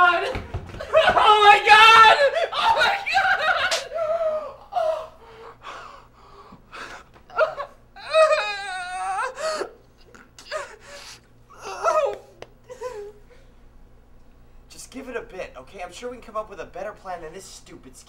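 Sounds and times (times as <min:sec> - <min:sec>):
person wailing: 0:00.9 - 0:05.2, 0:07.3 - 0:13.2
person gasping and whimpering: 0:03.9 - 0:13.5.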